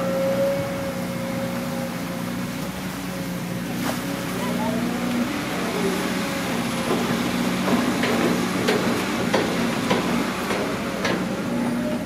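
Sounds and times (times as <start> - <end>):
excavator diesel engine running: 0.0 - 12.0
sharp knocks: 6.9 - 11.3.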